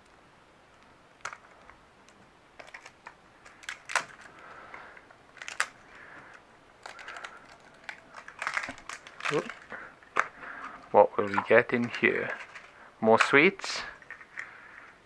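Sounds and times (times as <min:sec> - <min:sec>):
plastic wrapper crinkling and tearing: 0:02.6 - 0:10.6, 0:11.2 - 0:14.6.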